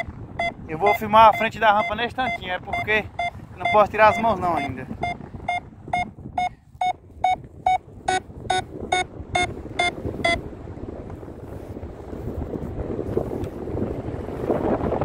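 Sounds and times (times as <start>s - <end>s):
short electronic beeps: 0.0s - 10.4s.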